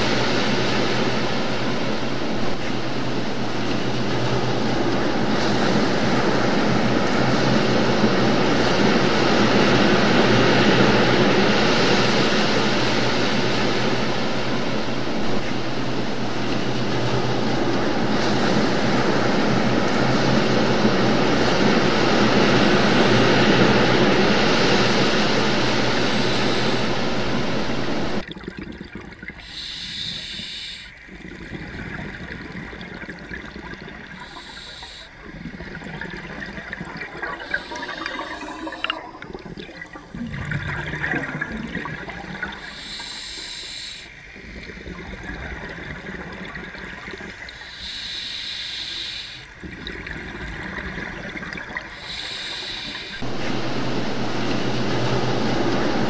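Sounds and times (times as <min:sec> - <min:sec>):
underwater bubbling bursts: 0:00.0 - 0:29.7, 0:31.0 - 0:43.0, 0:44.1 - 0:47.8, 0:49.4 - 0:56.0
underwater water rushing: 0:00.0 - 0:30.3, 0:30.9 - 0:48.5, 0:49.2 - 0:56.0.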